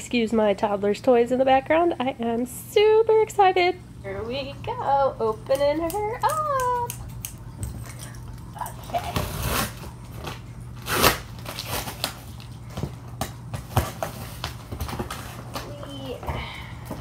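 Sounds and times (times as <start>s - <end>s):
packing tape ripping: 9.0s - 12.5s.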